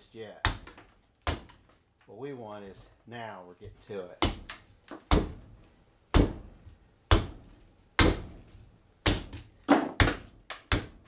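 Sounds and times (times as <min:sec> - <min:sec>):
hatchet chopping wood: 0:00.4 - 0:01.6, 0:04.2 - 0:05.4, 0:06.1 - 0:06.5, 0:07.1 - 0:08.4, 0:09.0 - 0:11.0.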